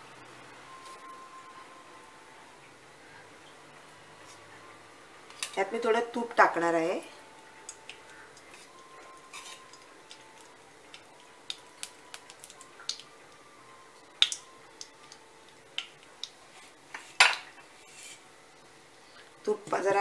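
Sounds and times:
ghee crackling in hot pan: 5.2 - 20.0.

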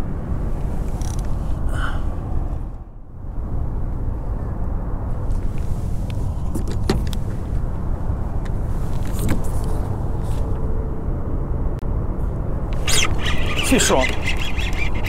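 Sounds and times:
fishing gear knocks and clicks: 12.8 - 15.0.

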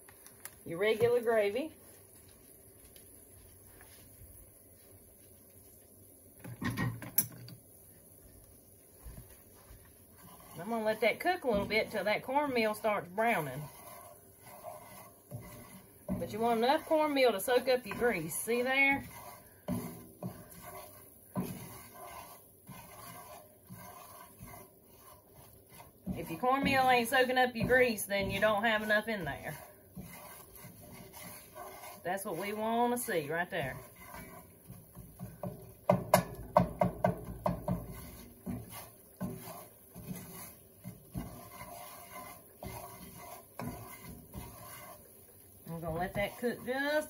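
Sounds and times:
wooden spatula scraping skillet: 0.0 - 47.0.

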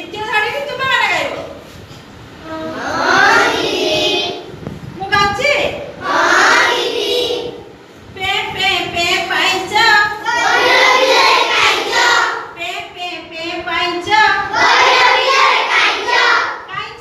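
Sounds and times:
children singing in unison: 2.5 - 4.4, 6.0 - 7.6, 10.3 - 12.5, 14.5 - 16.6.

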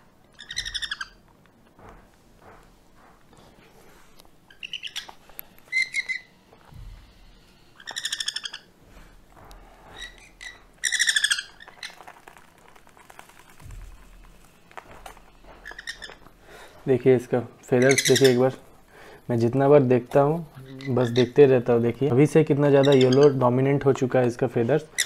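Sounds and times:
parrot chicks stuttering calls: 0.4 - 1.2, 4.5 - 6.4, 7.8 - 8.7, 9.8 - 12.4, 15.6 - 16.2, 17.8 - 18.6, 20.5 - 21.4, 22.7 - 23.4.

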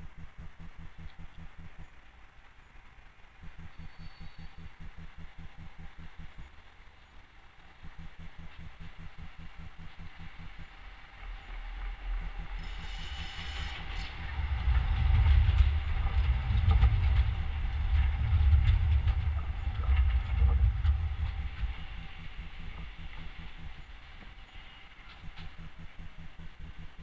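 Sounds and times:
tram rumbling past on rails: 10.2 - 27.0.

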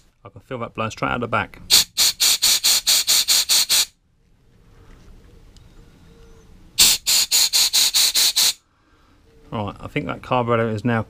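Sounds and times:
compressed air blasts hissing: 1.7 - 4.0, 6.8 - 8.6.

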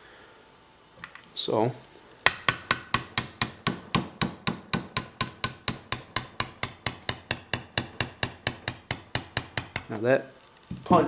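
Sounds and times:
hammer tapping metal punch: 2.2 - 10.1.

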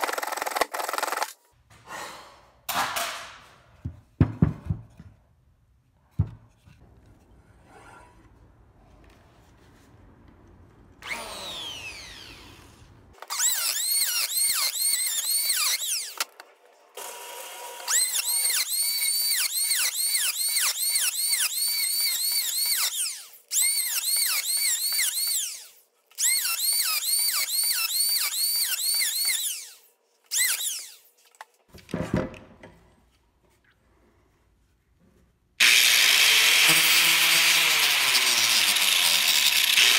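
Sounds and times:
power tool cutting wood: 11.0 - 16.3, 17.0 - 31.0, 35.6 - 39.9.

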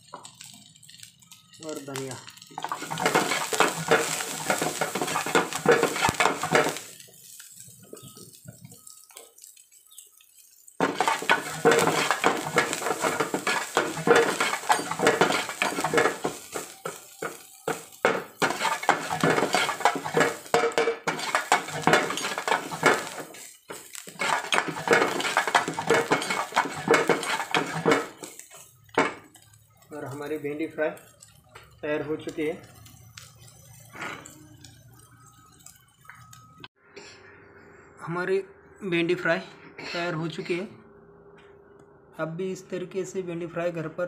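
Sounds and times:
metal spatula scraping a frying pan: 2.6 - 7.0, 10.8 - 29.1.

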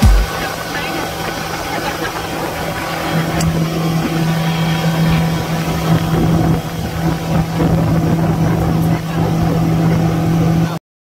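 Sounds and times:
outboard motor drone: 0.0 - 10.8
wake water: 0.0 - 10.8
wind rush: 0.0 - 10.8.

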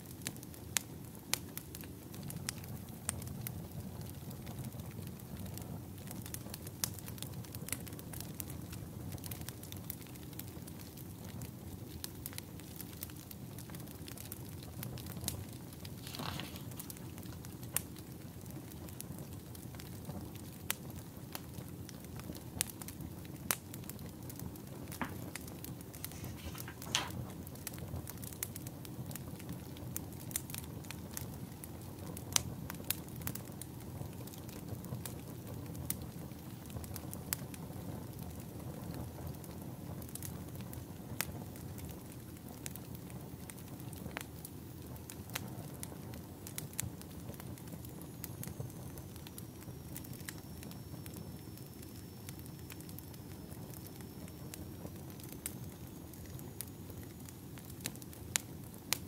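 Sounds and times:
fire crackles and pops: 0.0 - 59.0
wood fire rushing: 12.7 - 20.4, 22.1 - 27.8.

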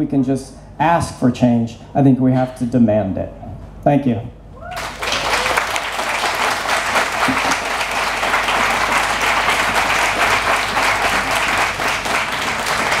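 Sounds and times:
audience applauding: 4.7 - 13.0.

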